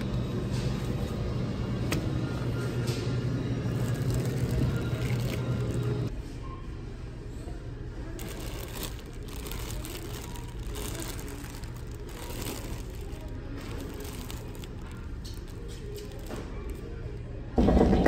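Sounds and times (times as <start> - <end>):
low background hum: 0.0 - 18.0
plastic bags crinkling: 3.7 - 6.1, 8.2 - 17.1.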